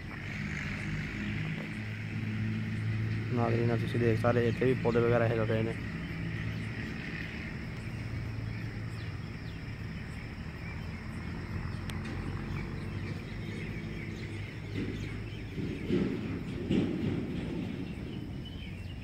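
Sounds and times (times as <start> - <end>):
insect-like drone: 0.0 - 19.0
steady low hum: 0.0 - 19.0.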